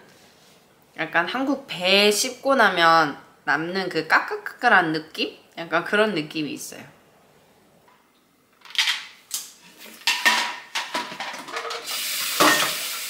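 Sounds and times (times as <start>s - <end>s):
dishes clattering: 9.9s - 12.9s
tap water running: 11.6s - 13.0s.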